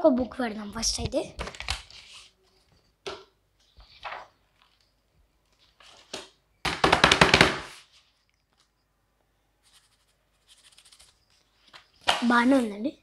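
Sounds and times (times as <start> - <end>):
book pages riffling: 1.4 - 2.4, 3.6 - 4.9, 5.5 - 6.3, 9.7 - 12.7
paper rustle: 1.4 - 2.9, 3.6 - 6.4, 9.6 - 12.8.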